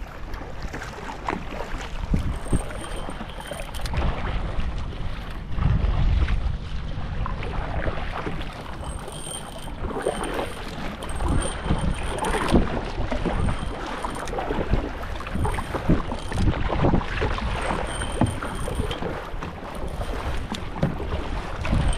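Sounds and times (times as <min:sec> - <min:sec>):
wind buffeting microphone: 0:01.9 - 0:21.9.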